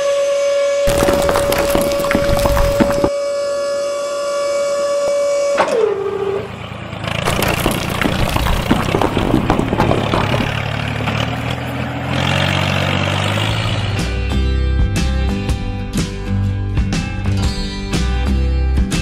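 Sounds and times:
vehicle engine running: 0:06.6 - 0:15.5
rattling clatter: 0:07.2 - 0:11.3.

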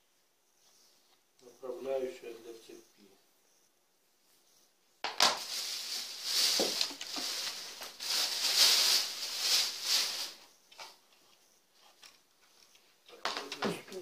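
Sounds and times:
plastic bag crinkling: 0:05.1 - 0:11.0.

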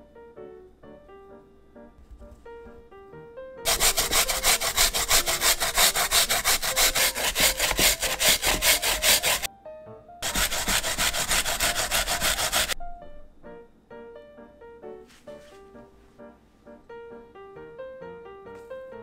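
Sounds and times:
grating on a plastic grater: 0:03.7 - 0:09.5, 0:10.2 - 0:12.8.

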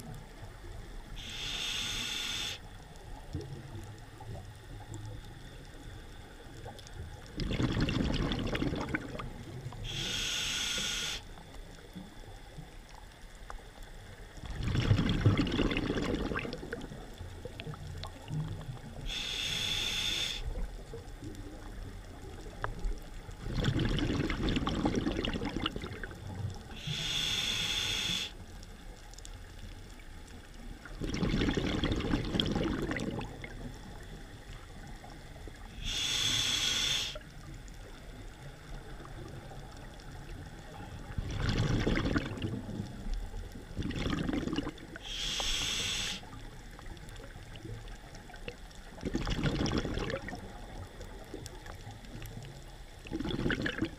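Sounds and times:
exhaled bubbles underwater: 0:00.0 - 0:13.0, 0:14.1 - 0:53.9
scuba regulator hissing inhale: 0:01.2 - 0:02.7, 0:09.8 - 0:11.4, 0:19.0 - 0:20.6, 0:26.7 - 0:28.4, 0:35.6 - 0:37.3, 0:45.0 - 0:46.4.

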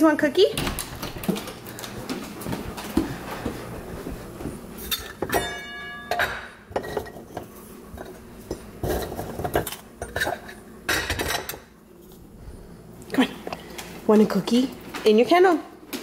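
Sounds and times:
glass jar clinking: 0:04.9 - 0:07.2.

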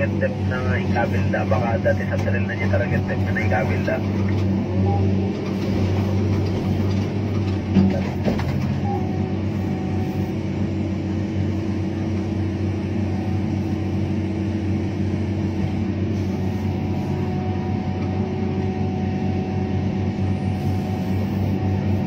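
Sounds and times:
faint steady whine: 0:00.0 - 0:04.4
excavator diesel engine running: 0:00.0 - 0:22.0.

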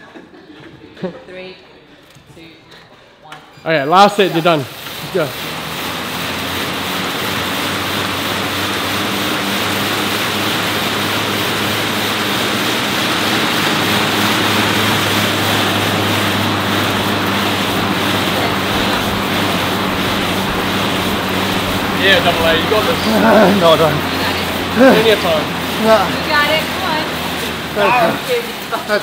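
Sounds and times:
exercise bike fan whooshing: 0:03.9 - 0:29.0
steady low hum: 0:12.7 - 0:28.2.

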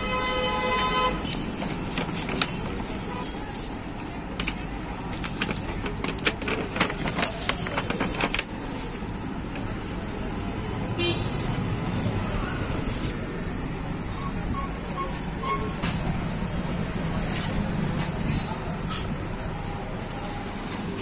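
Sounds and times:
street traffic rumble: 0:00.0 - 0:21.0
sticker sheets crackling: 0:01.2 - 0:09.9.

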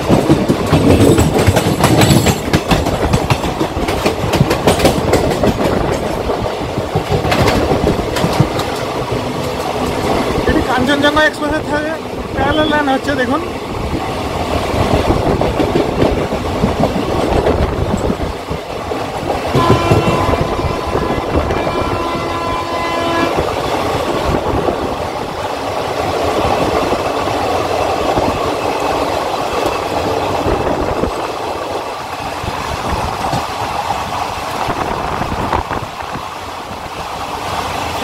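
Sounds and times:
wind rush: 0:00.0 - 0:12.6, 0:13.4 - 0:38.0
train wheel and rail clatter: 0:00.0 - 0:38.0
train horn: 0:19.5 - 0:23.4.

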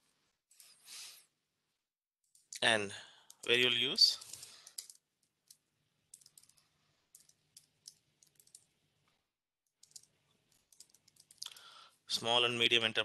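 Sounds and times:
faint keyboard typing: 0:04.1 - 0:08.7, 0:09.8 - 0:11.7.

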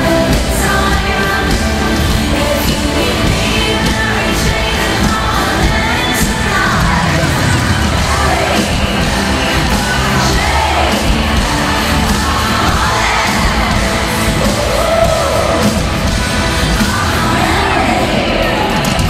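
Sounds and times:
woman singing: 0:00.0 - 0:08.8
crowd yelling and cheering: 0:00.0 - 0:19.0
loud band with electronic backing: 0:00.0 - 0:19.0.

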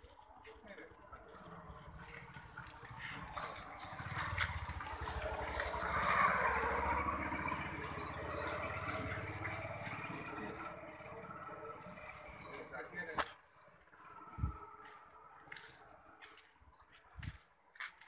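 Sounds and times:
vehicle engine passing by: 0:01.0 - 0:13.2.

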